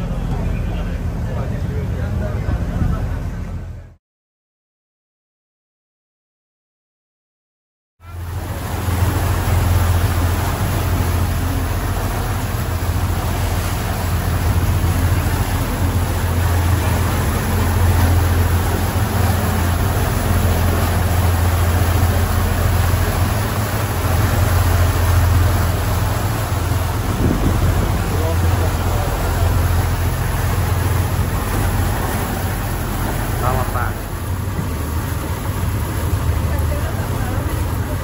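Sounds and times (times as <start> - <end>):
motor boat engine droning: 0.0 - 4.0, 8.0 - 38.0
wind and water rushing: 8.0 - 38.0.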